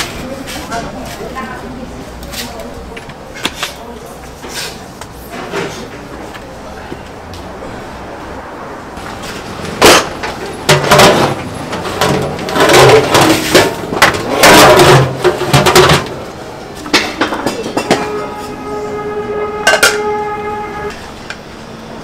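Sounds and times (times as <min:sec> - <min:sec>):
pots and bowls clattering: 0:09.8 - 0:16.2, 0:16.9 - 0:18.5, 0:19.6 - 0:20.2.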